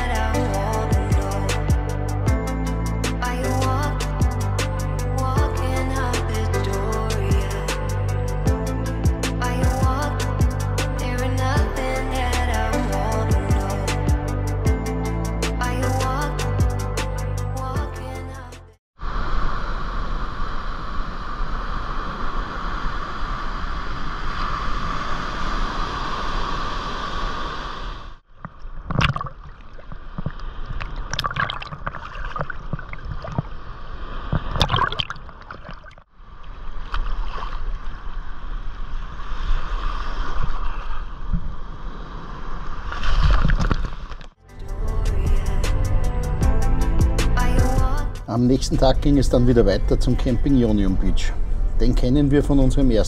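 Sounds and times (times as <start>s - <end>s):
water splashes: 28.3s - 38.3s, 42.5s - 44.4s
sea water washing at shore: 28.8s - 38.4s.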